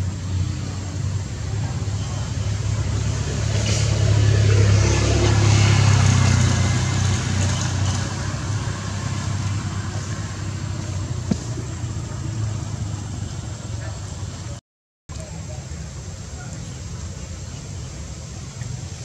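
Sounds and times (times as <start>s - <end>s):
motor engine running: 0.0s - 14.6s.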